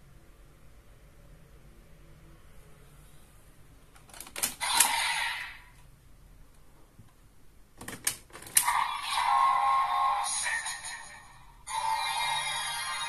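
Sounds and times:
toy belt electronic sound effect: 4.5s - 5.6s, 8.6s - 13.0s.

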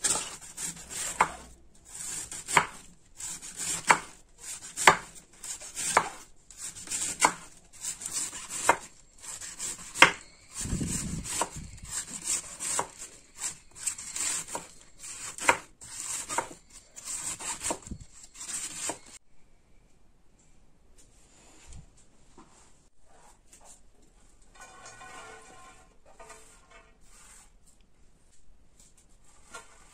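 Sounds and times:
knife slicing cabbage on board: 0.0s - 19.2s.

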